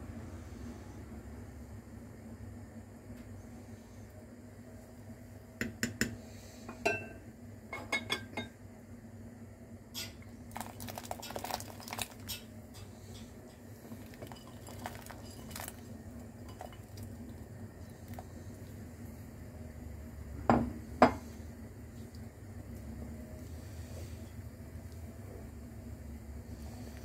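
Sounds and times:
low steady hum: 0.0s - 27.0s
beans clattering off metal plate: 14.0s - 15.8s.

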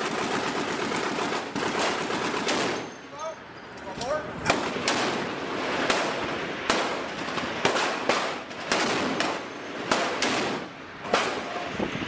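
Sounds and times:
gunshots with echo: 4.4s - 11.6s.

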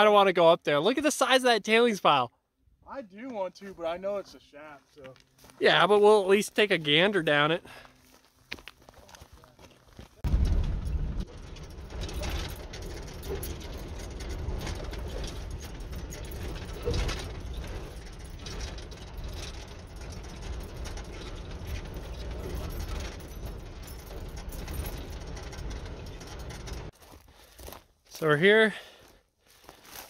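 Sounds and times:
footsteps crunching on gravel: 3.7s - 10.3s, 26.9s - 30.0s.

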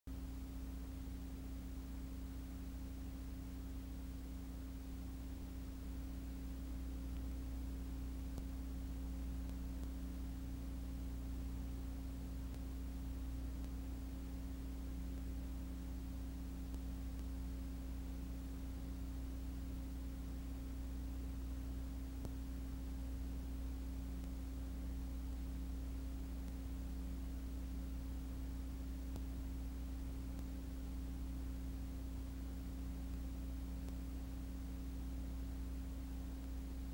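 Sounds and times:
faint hiss: 0.1s - 36.9s
low electrical hum: 0.1s - 36.9s.

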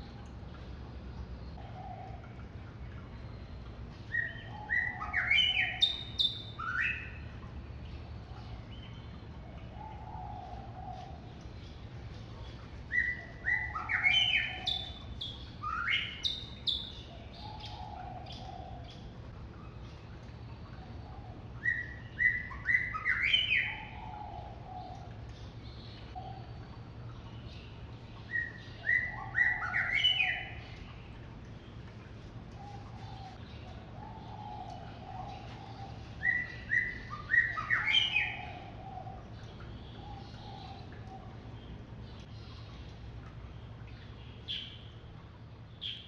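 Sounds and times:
songbird whistling: 36.2s - 38.4s.

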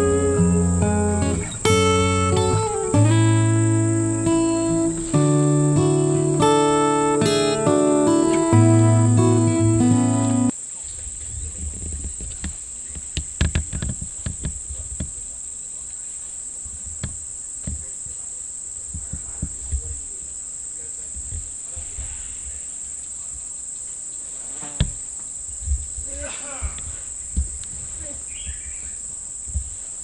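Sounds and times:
low thumps: 0.0s - 10.5s
insects droning: 0.0s - 30.0s.

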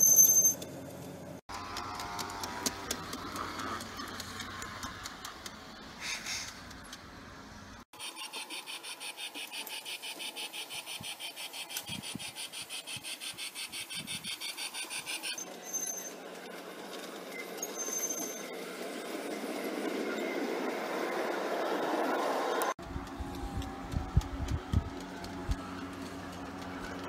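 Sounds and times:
model train rolling on track: 14.6s - 27.0s.

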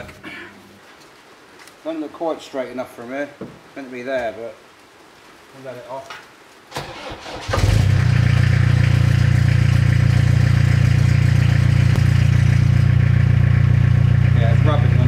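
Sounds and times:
van engine starting: 6.7s - 15.0s
van engine idling: 6.9s - 15.0s.

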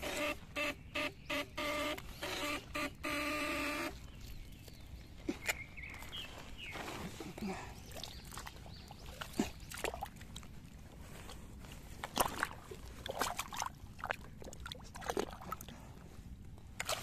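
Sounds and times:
squelching and sloshing mud: 4.2s - 16.0s, 16.7s - 17.0s.

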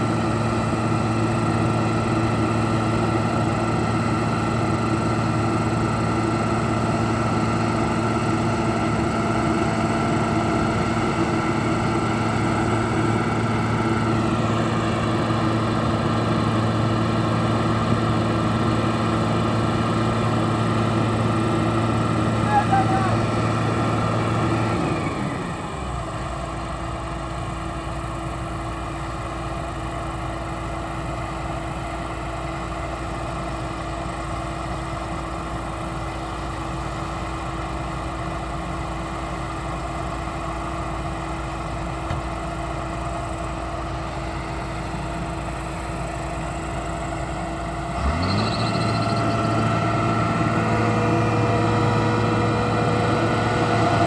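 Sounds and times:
tractor diesel engines revving: 0.0s - 54.0s.

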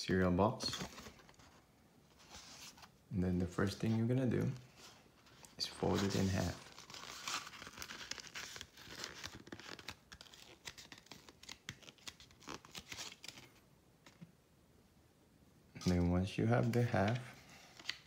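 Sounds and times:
cardboard crackling as folded: 5.3s - 13.6s.

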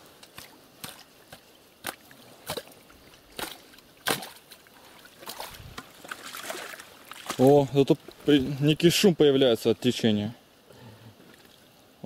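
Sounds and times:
water trickling: 0.0s - 10.3s
shovel chopping into wet soil: 3.4s - 4.4s.

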